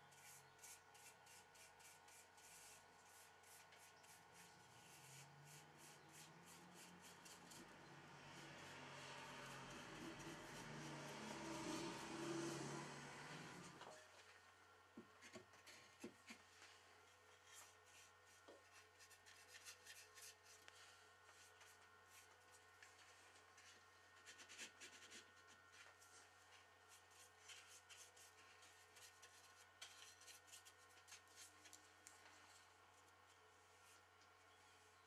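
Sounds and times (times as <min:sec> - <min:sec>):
brush scratching on wood: 0:00.1 - 0:07.7, 0:08.4 - 0:12.6.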